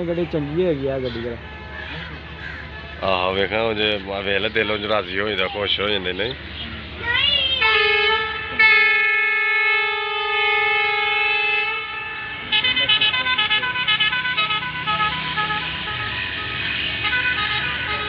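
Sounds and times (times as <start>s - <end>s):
train horn blast: 7.6s - 18.0s.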